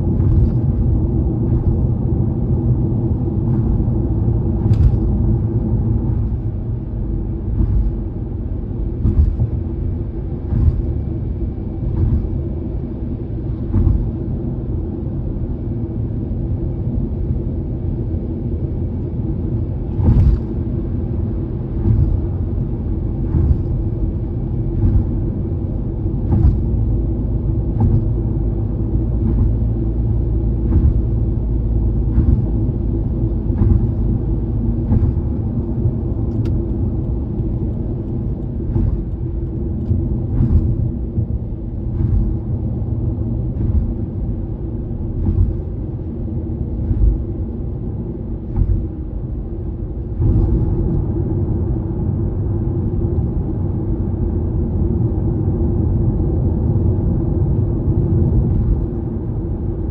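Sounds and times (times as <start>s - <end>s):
tyre and road rumble: 0.0s - 14.6s, 19.5s - 53.8s.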